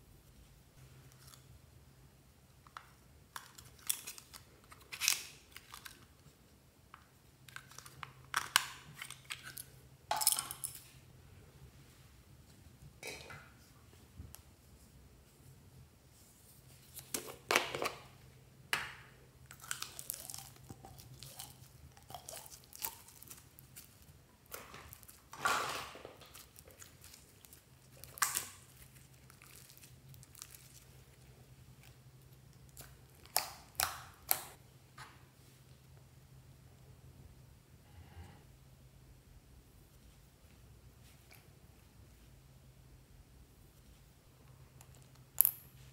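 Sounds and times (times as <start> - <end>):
crunchy slime crackling: 19.5 - 25.3, 26.2 - 34.6.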